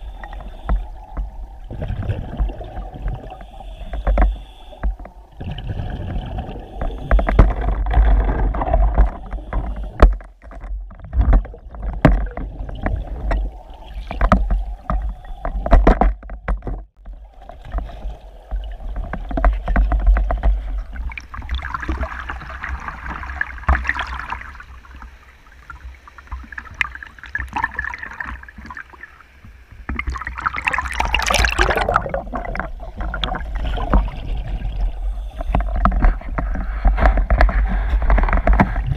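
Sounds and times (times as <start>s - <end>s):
underwater water rumble: 0.0s - 38.9s
hissing bubbling water: 30.0s - 36.8s.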